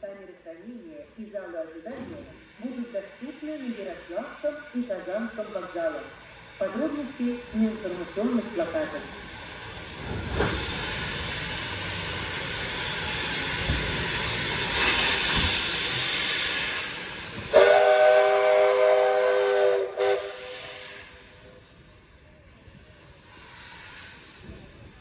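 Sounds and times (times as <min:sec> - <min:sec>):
steam venting hiss: 0:02.0 - 0:25.0
steam locomotive whistle: 0:17.5 - 0:21.4.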